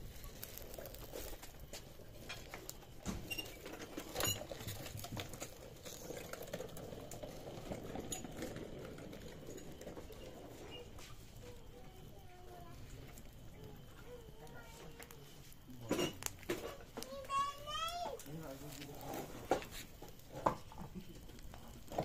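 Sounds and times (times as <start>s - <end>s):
low rush of burning: 0.0s - 22.0s
wood fire crackling and popping: 0.0s - 22.0s.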